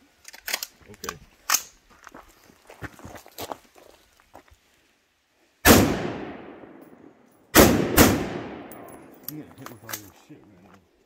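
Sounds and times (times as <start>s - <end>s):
rifle shots with echo: 5.6s - 9.2s.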